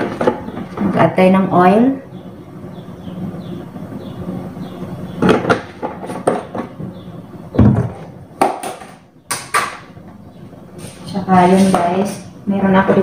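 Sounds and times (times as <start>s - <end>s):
steady low hum: 0.0s - 13.0s
kitchen knocks and clunks: 7.6s - 9.9s.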